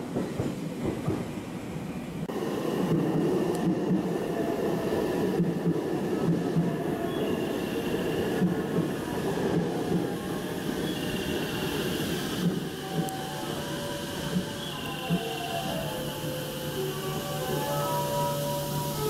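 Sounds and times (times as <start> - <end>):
train wheels rumbling on rails: 0.0 - 19.0
faint high wheel squeal: 10.8 - 19.0.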